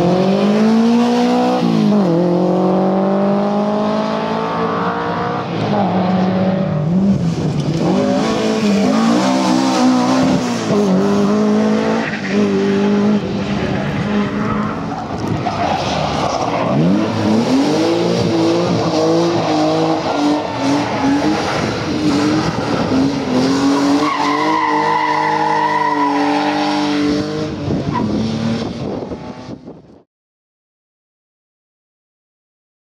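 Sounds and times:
rally car engines revving: 0.0s - 29.8s.

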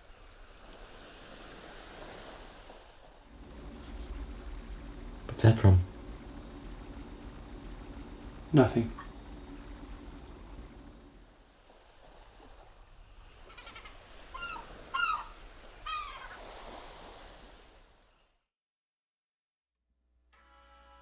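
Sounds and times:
steady background noise: 3.3s - 11.3s.

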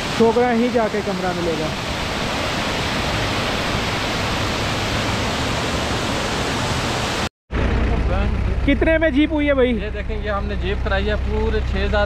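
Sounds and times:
waterfall rushing: 0.0s - 7.3s
low rumble: 7.5s - 12.0s.

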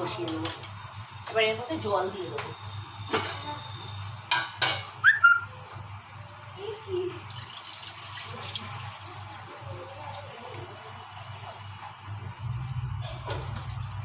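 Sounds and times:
water pouring into a metal pan: 7.2s - 11.6s.

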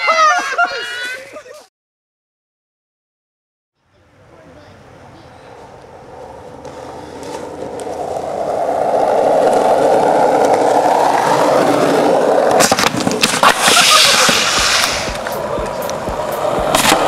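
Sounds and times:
skateboard wheels rolling on pavement: 4.0s - 17.0s.

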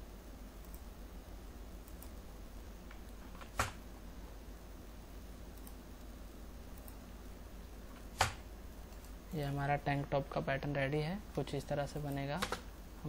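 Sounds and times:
low background hum: 0.0s - 13.0s
computer mouse clicks: 1.8s - 2.2s, 5.5s - 5.8s, 6.7s - 7.0s.

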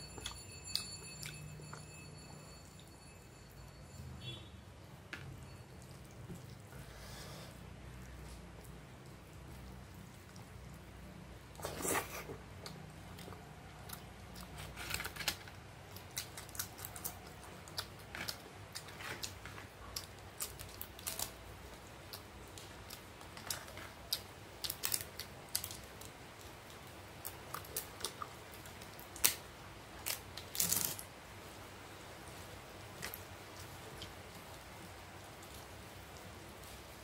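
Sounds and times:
crisp papad crackling and crunching: 13.8s - 31.0s.

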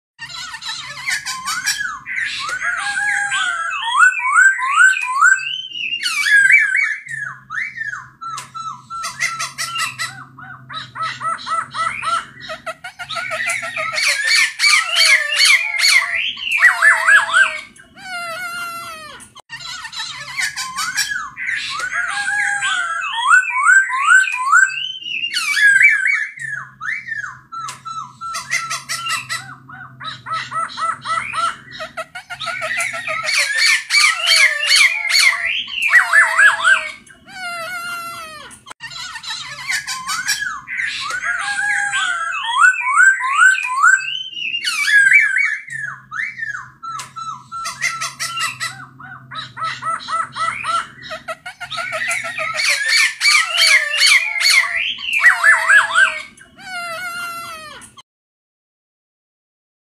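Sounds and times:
bird rasping calls: 0.2s - 58.0s
bird singing whistled song: 1.1s - 10.2s, 13.1s - 17.9s, 20.5s - 29.2s, 39.7s - 48.2s, 51.8s - 56.3s.

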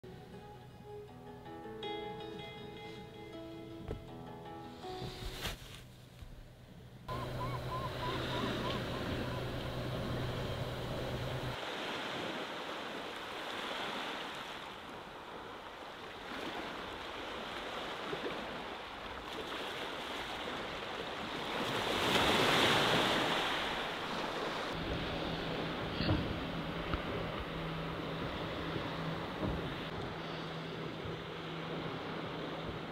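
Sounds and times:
low steady hum: 5.5s - 11.6s
ocean waves washing on shore: 7.1s - 32.9s.

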